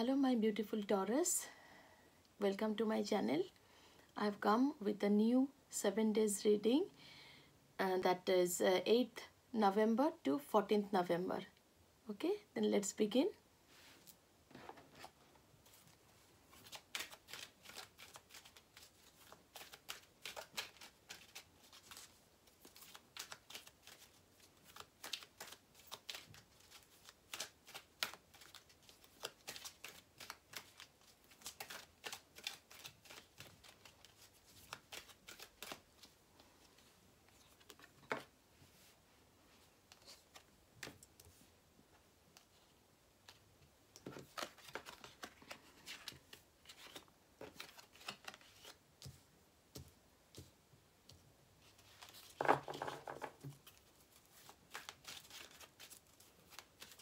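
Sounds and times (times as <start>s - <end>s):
cards being shuffled: 16.5s - 38.9s, 39.6s - 41.5s, 44.0s - 49.2s, 51.6s - 57.0s.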